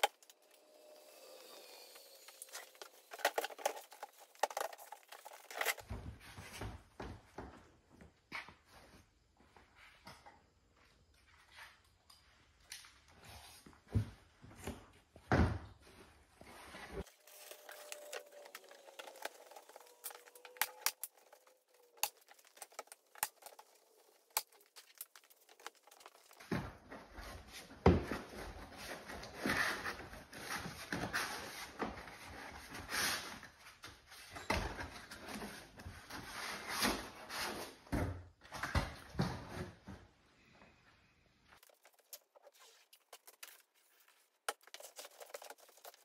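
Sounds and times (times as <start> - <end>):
cardboard rustling and scraping: 2.4 - 6.7, 16.4 - 33.5, 41.6 - 46.0.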